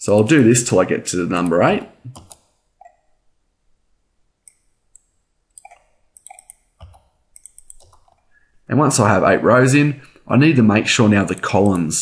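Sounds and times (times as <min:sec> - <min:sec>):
keyboard keys clicking: 0:05.6 - 0:08.2.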